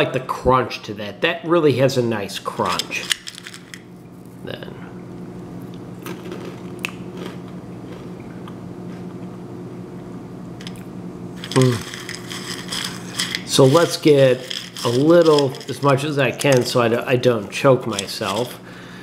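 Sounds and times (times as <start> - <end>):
steady low hum: 0.0 - 19.0
snack mix being chewed: 5.6 - 9.4, 10.1 - 15.8.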